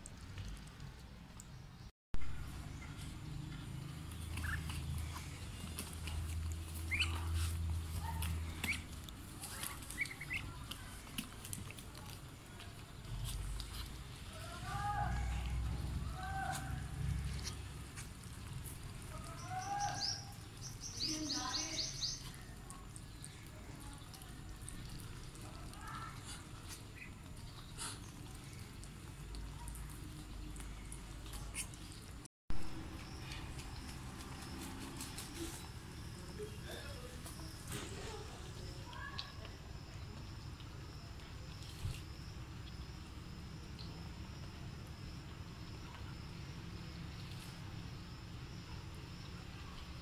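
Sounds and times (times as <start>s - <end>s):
ducklings peeping: 4.1s - 10.7s.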